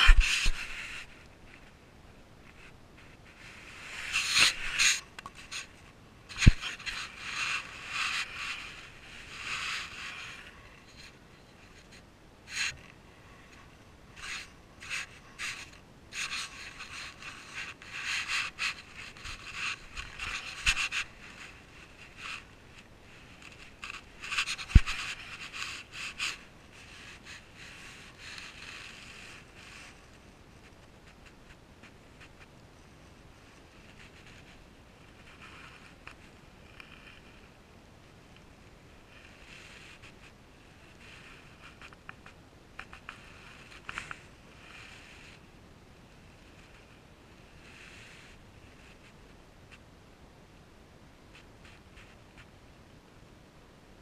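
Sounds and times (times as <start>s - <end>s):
scraping and rustling: 0.0s - 1.8s, 2.4s - 37.6s.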